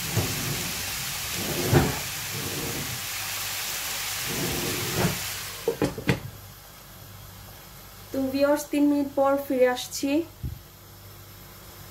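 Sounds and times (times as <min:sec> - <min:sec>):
vegetables sizzling in a frying pan: 0:00.0 - 0:09.2.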